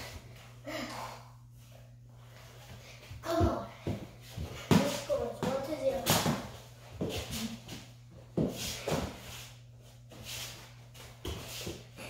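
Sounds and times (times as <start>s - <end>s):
bare feet thudding on floor: 3.2s - 9.4s.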